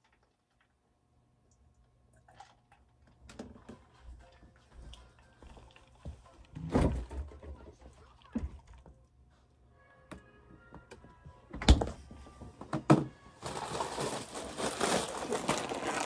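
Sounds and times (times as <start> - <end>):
plastic crinkling: 13.4 - 16.0.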